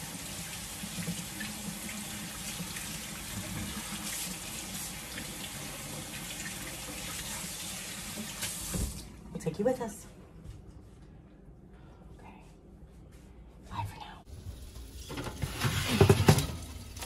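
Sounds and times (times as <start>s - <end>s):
faucet running into sink: 0.0s - 9.1s.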